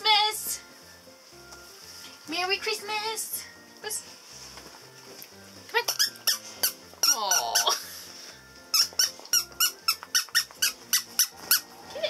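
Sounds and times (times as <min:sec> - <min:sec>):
background music with beat: 0:00.0 - 0:02.5
squeaky dog toy: 0:05.8 - 0:07.9, 0:08.6 - 0:11.7.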